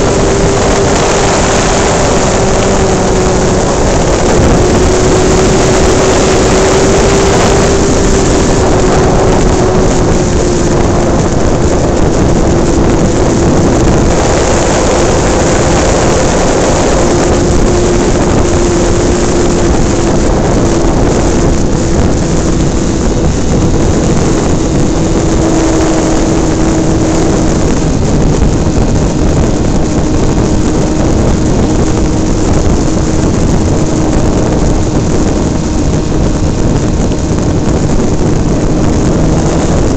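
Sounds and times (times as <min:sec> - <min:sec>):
motor and propeller drone: 0:00.0 - 0:39.9
wind rush over microphone: 0:00.0 - 0:39.9.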